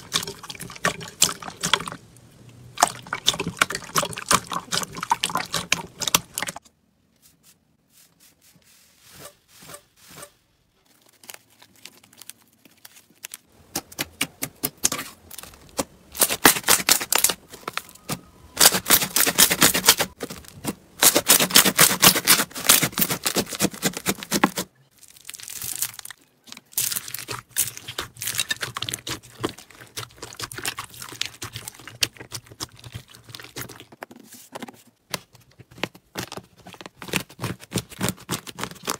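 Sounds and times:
slime crackling and popping: 25.0s - 33.8s.

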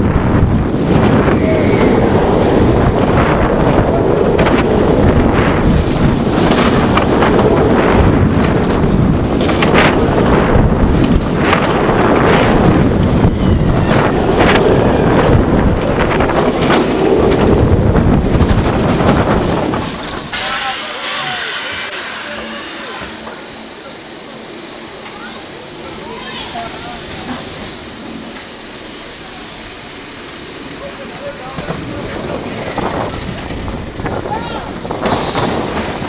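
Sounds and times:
wind buffeting microphone: 0.0s - 21.8s, 30.4s - 36.0s
roller coaster rumbling: 0.0s - 36.0s.

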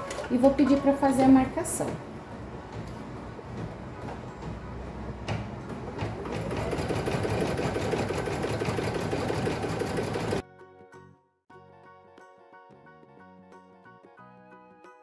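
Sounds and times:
background music: 0.0s - 15.0s
embroidery machine stitching: 5.9s - 10.4s.

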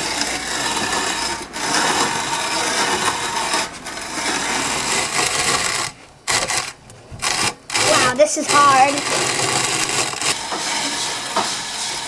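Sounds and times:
coffee grinder grinding beans: 7.3s - 12.0s.

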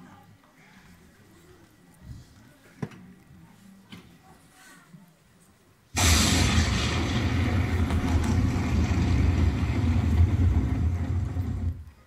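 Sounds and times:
engine-like rumbling sound effect: 6.0s - 11.8s.

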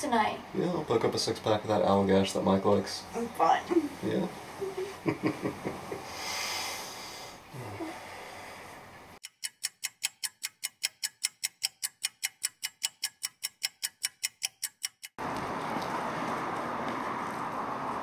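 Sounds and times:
clock ticking: 9.2s - 15.2s.

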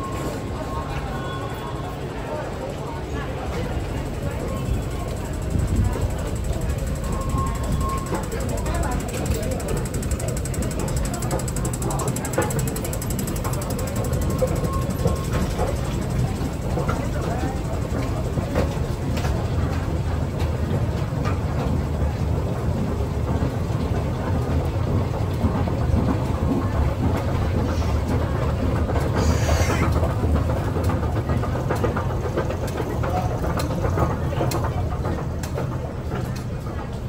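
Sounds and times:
escalator running: 2.6s - 37.0s.

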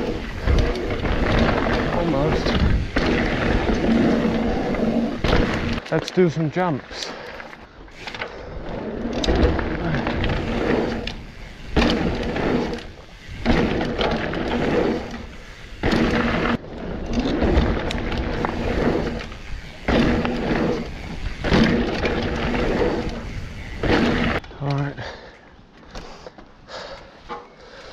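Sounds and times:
wind rushing past camera: 0.0s - 5.8s, 18.3s - 24.4s
tyres rumbling on dirt: 0.0s - 24.4s
bike landing knocks: 21.4s - 24.4s.

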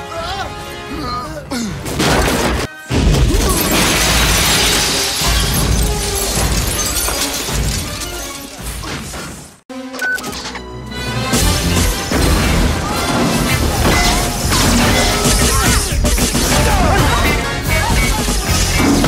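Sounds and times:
film score music: 0.0s - 3.3s, 6.3s - 19.0s
glass shattering and clattering: 3.1s - 9.4s, 11.4s - 19.0s
loud crash: 11.3s - 17.5s.

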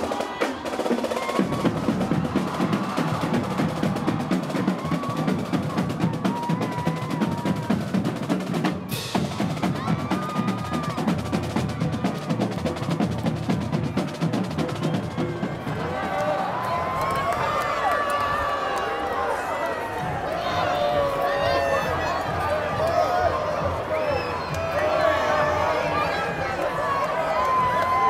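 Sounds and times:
drumline playing snare and bass drums: 0.0s - 16.6s.

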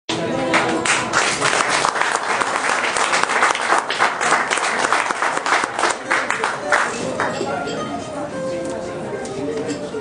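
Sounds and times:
group applauding: 0.4s - 7.5s.

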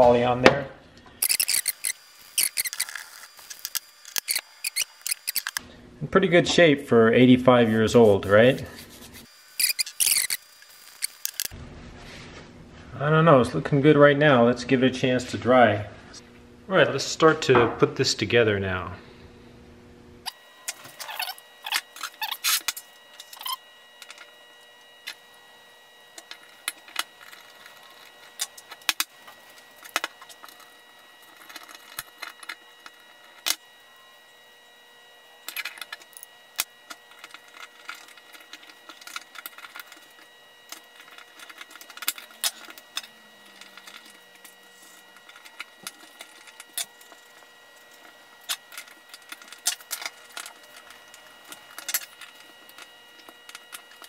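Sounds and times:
steel plane parts clinking: 35.5s - 54.0s.

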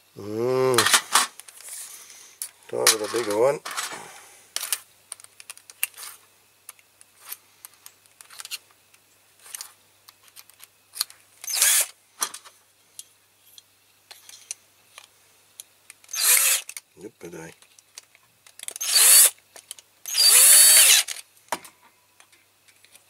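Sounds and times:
toy handled over foil tray: 0.8s - 1.8s, 2.7s - 6.2s
small clicks and taps of drill bit: 17.5s - 21.0s.

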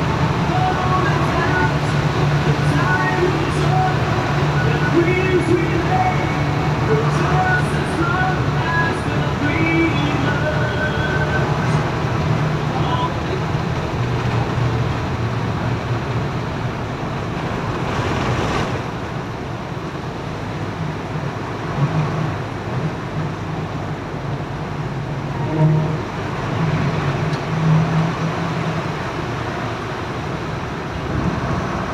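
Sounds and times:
bus engine drone: 0.0s - 31.9s
heavy rain: 0.0s - 31.9s
tyre spray on wet road: 11.2s - 19.5s.

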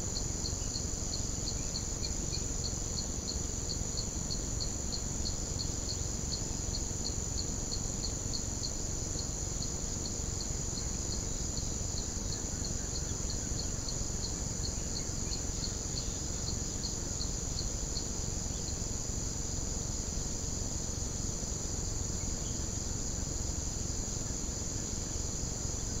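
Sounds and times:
insect chirping in pulses: 0.0s - 26.0s
insects trilling: 0.0s - 26.0s.

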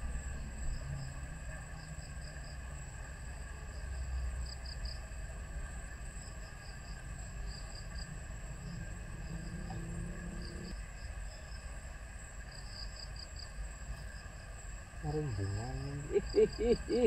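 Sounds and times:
insects chirping: 0.0s - 17.0s
low rumble: 6.9s - 11.3s
high-pitched hum: 8.1s - 11.5s, 15.0s - 17.0s.

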